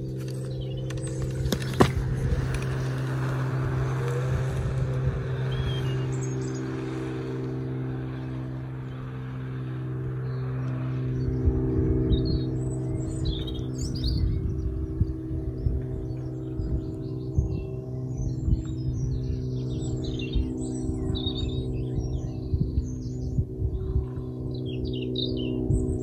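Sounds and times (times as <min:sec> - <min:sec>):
birds chirping: 0:00.0 - 0:26.0
low engine-like hum: 0:00.0 - 0:26.0
scooter kicked off knock: 0:00.9 - 0:04.9.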